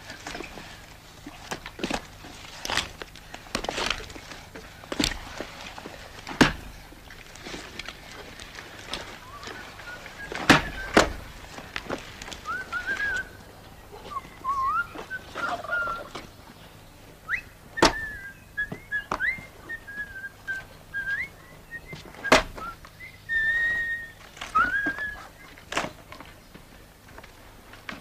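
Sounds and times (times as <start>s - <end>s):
person whistling a tune: 9.2s - 11.0s, 12.4s - 13.4s, 14.1s - 16.1s, 17.3s - 25.5s.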